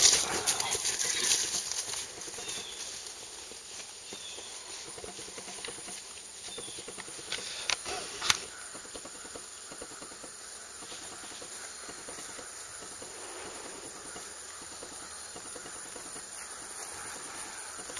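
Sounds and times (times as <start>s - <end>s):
outdoor background hiss: 0.0s - 17.9s
sharp clicks: 4.9s - 16.6s.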